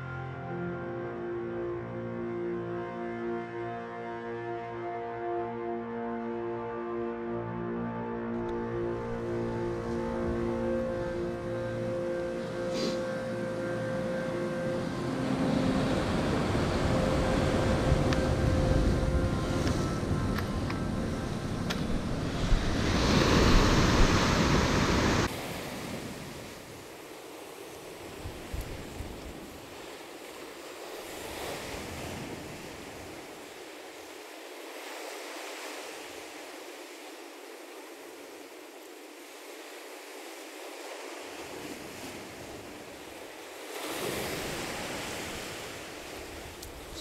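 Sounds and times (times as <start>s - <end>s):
sea surf: 2.2s - 47.0s
wind buffeting microphone: 15.4s - 25.3s.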